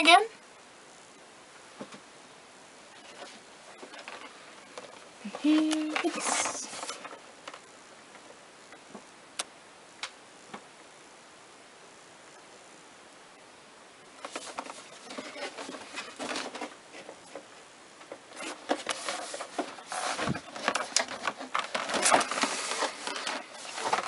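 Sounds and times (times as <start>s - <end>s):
hands rustling cardboard box: 3.0s - 7.2s, 14.2s - 24.0s.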